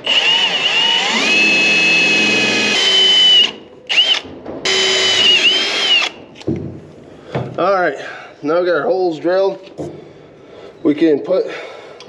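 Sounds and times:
cordless drill whining through metal: 0.0s - 6.2s.

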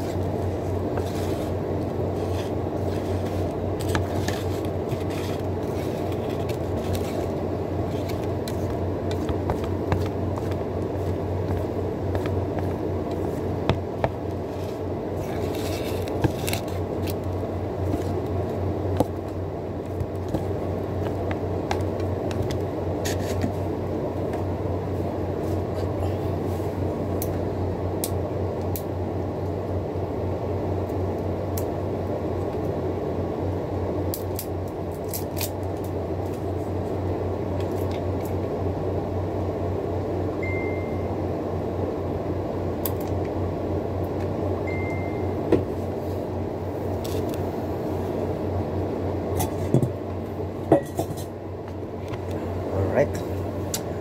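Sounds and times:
low machine hum: 0.0s - 54.0s
faint beeps: 40.4s - 41.1s.

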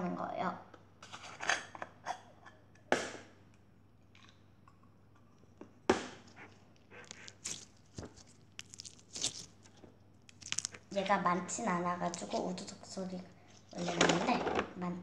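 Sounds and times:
slime crackling and squishing: 6.3s - 14.4s.

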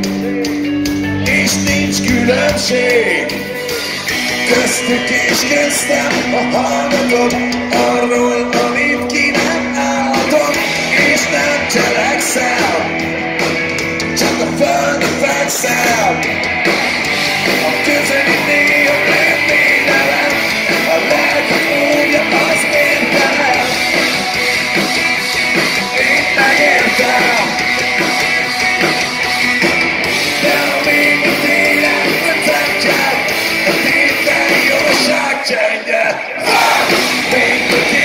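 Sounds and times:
rock band playing live: 0.0s - 38.0s.

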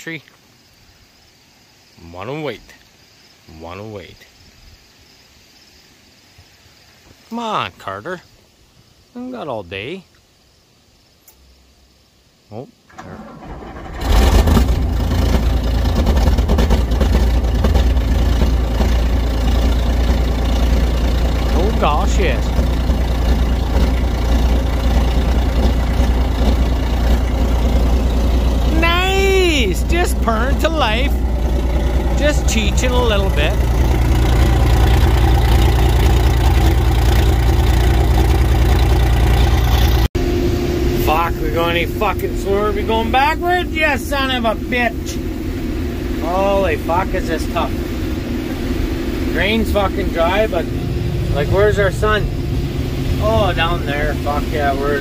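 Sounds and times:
diesel engine cranking and starting: 12.9s - 55.0s.

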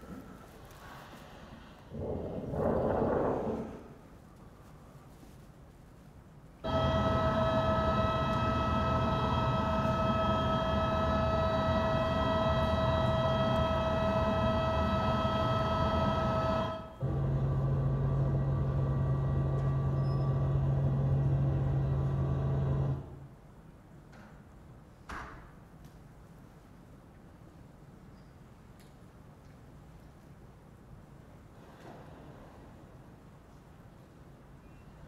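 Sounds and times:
low hum with rumble: 6.0s - 23.5s
machine-like whine: 6.6s - 23.2s.

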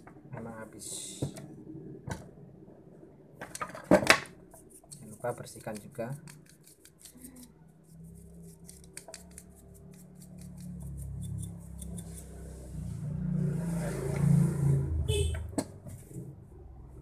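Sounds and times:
small brush scrubbing: 4.4s - 12.9s.

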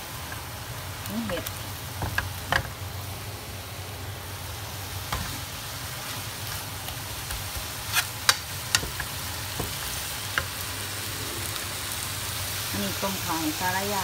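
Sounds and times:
food sizzling in a wok: 0.0s - 14.0s.

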